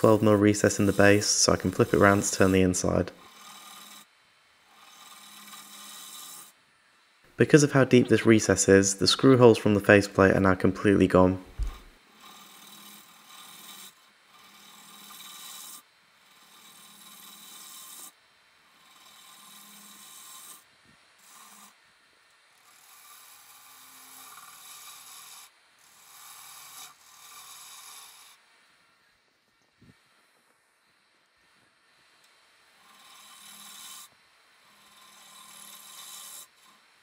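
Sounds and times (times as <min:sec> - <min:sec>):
lathe tool scraping wood: 0:00.0 - 0:04.1, 0:11.1 - 0:18.1.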